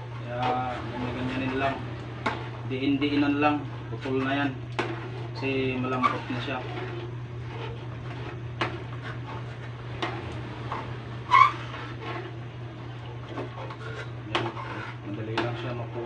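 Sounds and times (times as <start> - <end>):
low hum: 0.0 - 15.0
metal spatula scraping a pan: 0.1 - 12.3, 13.3 - 16.0.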